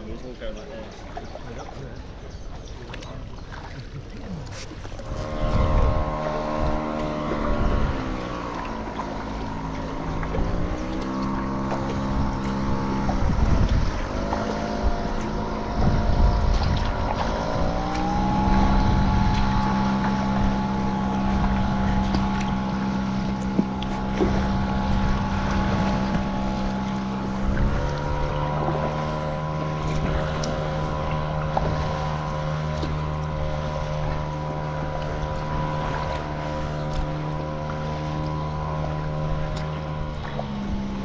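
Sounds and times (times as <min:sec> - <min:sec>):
motorboat engine running: 0:00.0 - 0:41.0.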